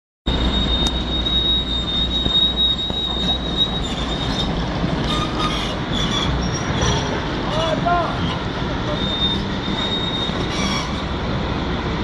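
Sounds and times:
turbocharger high-pitched whistle: 0.3s - 4.5s
diesel engine low rumble: 0.3s - 12.0s.

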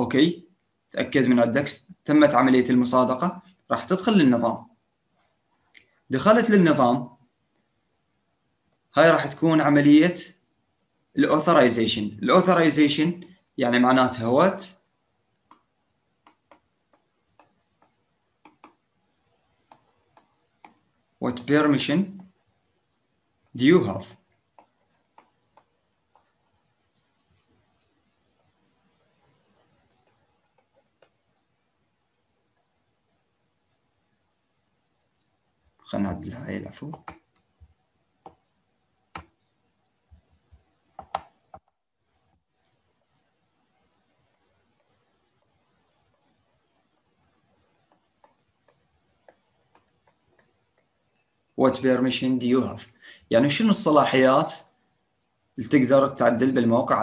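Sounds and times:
computer mouse clicks: 15.3s - 18.9s, 19.5s - 20.9s, 24.2s - 28.6s, 29.5s - 31.3s, 34.9s - 35.4s, 36.8s - 38.5s, 39.1s - 40.0s, 40.6s - 43.0s, 43.8s - 51.3s
stylus tapping on pen tablet: 15.4s - 18.9s, 19.5s - 20.9s, 24.3s - 27.2s, 36.9s - 38.5s, 39.1s - 42.7s, 47.7s - 51.1s.

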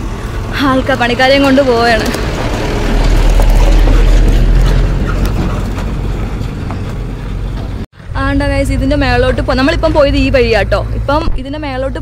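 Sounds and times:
pickup truck driving past: 0.0s - 7.8s.

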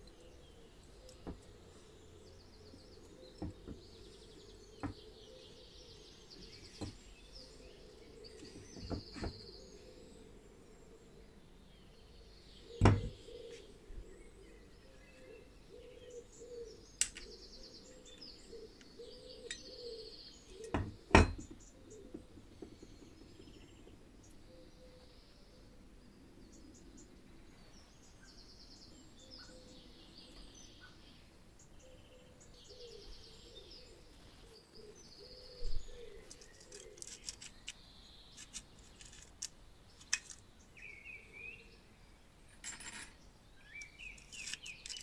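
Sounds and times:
small birds chirping: 0.0s - 45.0s
motor parts clicking on a bench: 36.3s - 40.5s, 43.8s - 45.0s.

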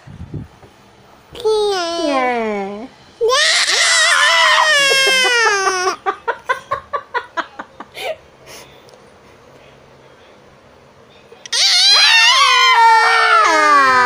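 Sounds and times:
woman and toddler squealing: 3.2s - 6.0s, 11.5s - 14.0s
woman and toddler laughing: 3.8s - 8.2s.

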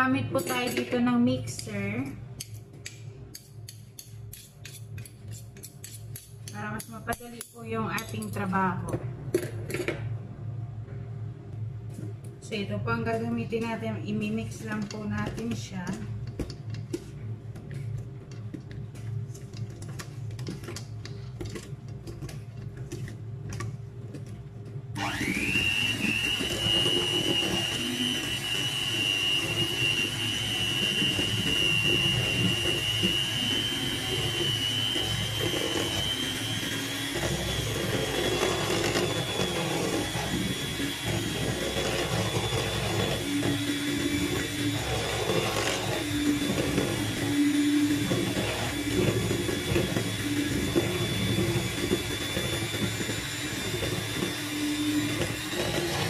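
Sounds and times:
electric mixer beating batter: 25.0s - 56.0s
high motor whine: 25.0s - 56.0s.

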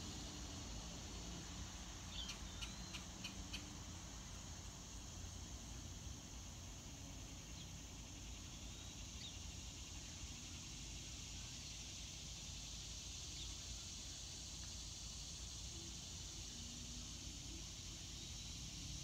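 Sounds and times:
insect chorus: 0.0s - 19.0s
faint bird chirps: 2.1s - 3.7s.

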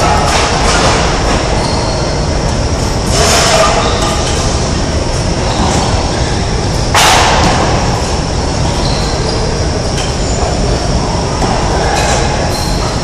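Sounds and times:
gym hall rumble: 0.0s - 13.0s
loud bang ringing in hall: 6.9s - 8.0s.

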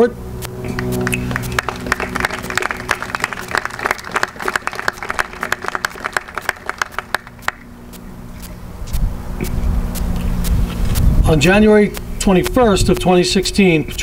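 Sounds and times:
audience applauding: 0.7s - 7.6s.

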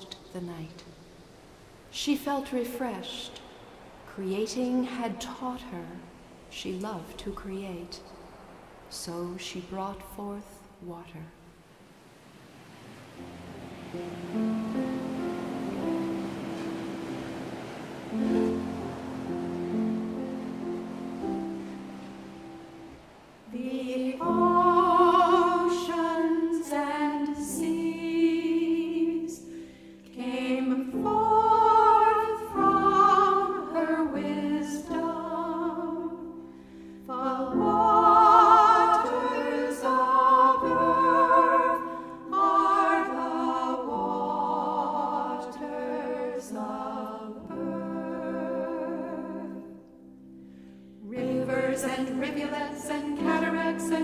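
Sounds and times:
choir-like singing with vibrato: 11.9s - 49.9s, 51.0s - 54.0s.

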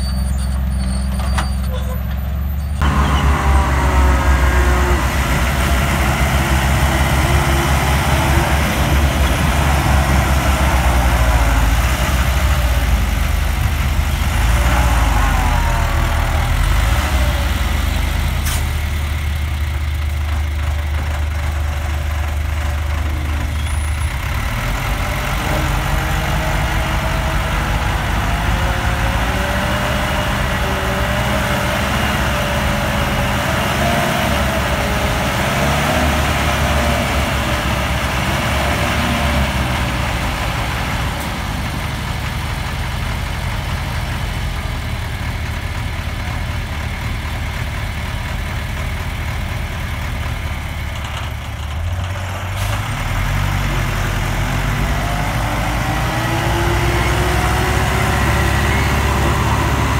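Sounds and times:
truck diesel engine rumble: 0.0s - 59.9s.

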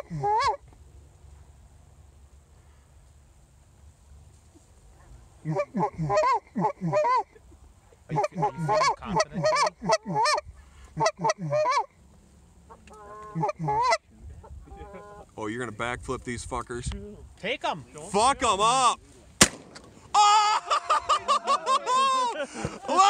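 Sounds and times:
goose call honks and clucks: 0.0s - 0.6s, 5.4s - 7.4s, 8.1s - 12.0s, 12.6s - 15.3s.

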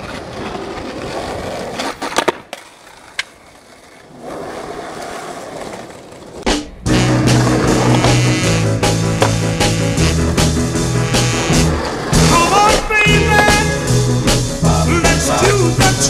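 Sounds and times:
skateboard clacks: 0.0s - 13.7s
skateboard wheels rolling on asphalt: 0.0s - 14.6s
rock music with guitar and drums: 6.5s - 16.0s.

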